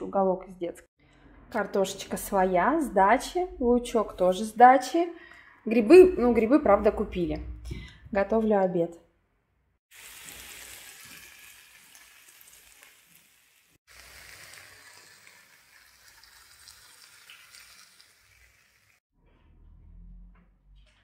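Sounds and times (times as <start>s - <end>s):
potatoes sizzling in a pan: 9.9s - 19.0s.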